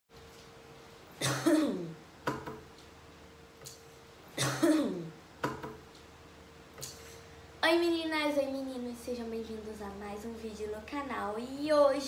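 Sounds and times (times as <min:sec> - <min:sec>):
faint steady hum: 0:00.1 - 0:12.0
woman coughing: 0:01.2 - 0:02.0, 0:04.4 - 0:05.2.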